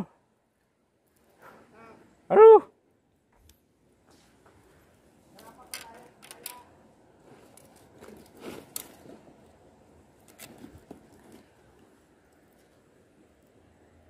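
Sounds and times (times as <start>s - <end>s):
gloved hands rustling: 7.2s - 13.1s.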